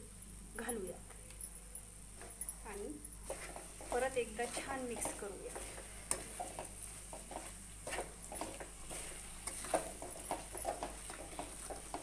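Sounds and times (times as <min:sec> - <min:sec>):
spatula scraping metal pan: 0:03.2 - 0:12.0.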